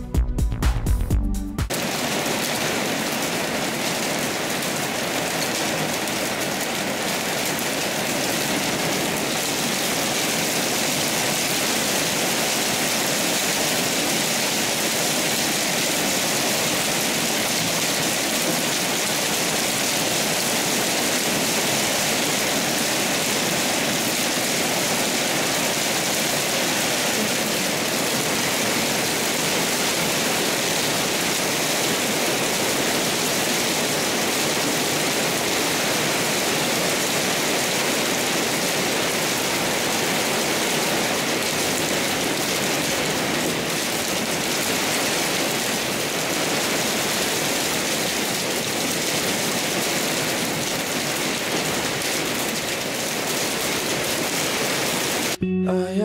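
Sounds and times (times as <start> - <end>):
heavy rain: 1.7 - 55.4.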